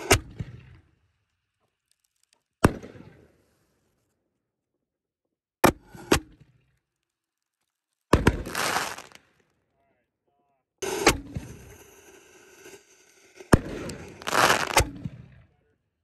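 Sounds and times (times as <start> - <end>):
fireworks bursting with bangs: 8.2 - 9.2, 13.4 - 15.2.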